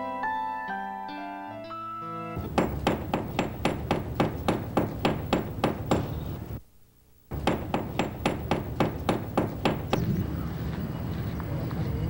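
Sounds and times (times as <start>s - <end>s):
hammer striking wooden hull: 2.4s - 6.6s, 7.3s - 10.1s.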